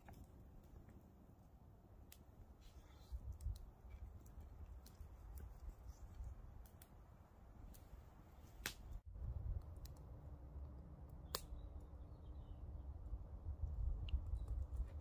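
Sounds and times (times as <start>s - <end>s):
wind rumble on microphone: 2.7s - 6.6s, 8.8s - 10.0s, 11.6s - 15.0s.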